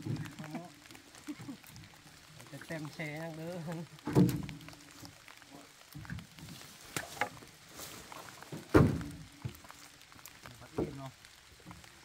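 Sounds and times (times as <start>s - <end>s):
wooden logs knocking and thudding: 0.0s - 12.0s.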